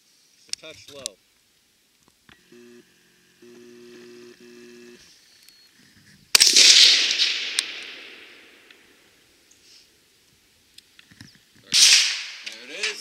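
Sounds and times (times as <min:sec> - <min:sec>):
faint low hum: 0:00.2 - 0:06.3
rifle shot with echo: 0:06.3 - 0:09.2, 0:11.7 - 0:13.0.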